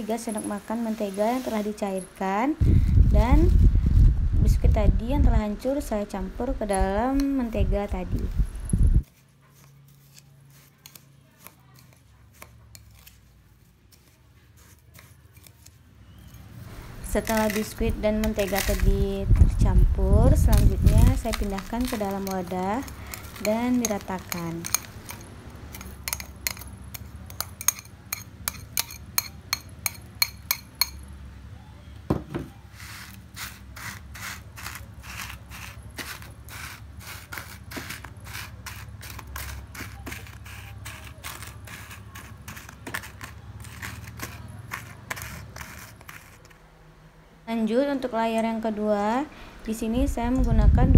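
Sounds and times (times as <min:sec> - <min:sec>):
spoon scraping glass bowl: 0:09.5 - 0:13.3, 0:13.9 - 0:19.2, 0:20.4 - 0:31.0, 0:32.6 - 0:46.6
low steady hum: 0:16.1 - 0:32.6, 0:46.5 - 0:50.9
spoon clinking against glass bowl: 0:21.2 - 0:31.1
dull thump: 0:32.1 - 0:32.5.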